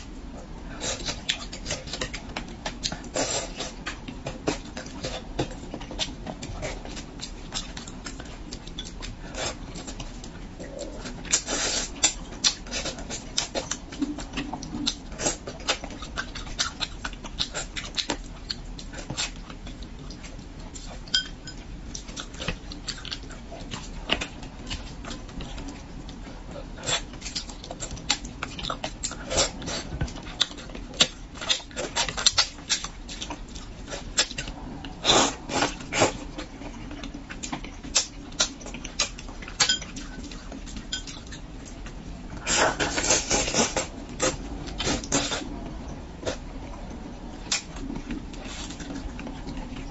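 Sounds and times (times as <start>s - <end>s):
person chewing and lip smacking: 0.8s - 49.9s.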